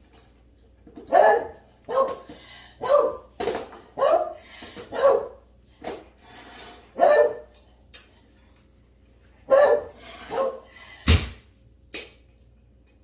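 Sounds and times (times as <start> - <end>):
dog barking: 1.1 - 3.3, 4.0 - 5.4, 7.0 - 7.5, 9.5 - 10.7.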